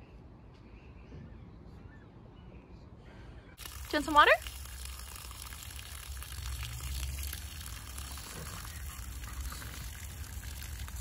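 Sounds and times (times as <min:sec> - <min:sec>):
hose water splashing on grass: 0:03.6 - 0:11.0.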